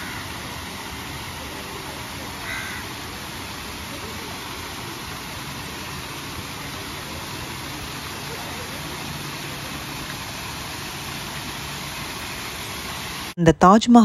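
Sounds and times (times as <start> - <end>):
crow cawing: 0.0 - 0.3, 2.4 - 2.9
water pouring from fountain spouts: 0.0 - 13.4.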